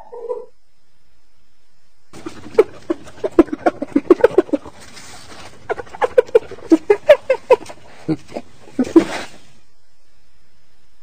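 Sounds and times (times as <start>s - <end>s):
hyena cackling: 2.1s - 9.6s.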